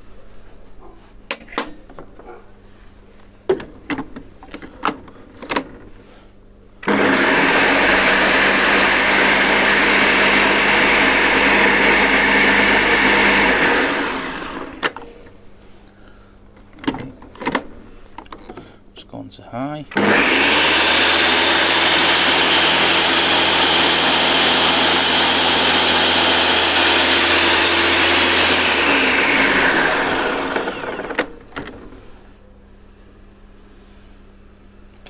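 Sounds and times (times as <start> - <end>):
blender motor running: 6.8 - 14.9, 19.9 - 31.4.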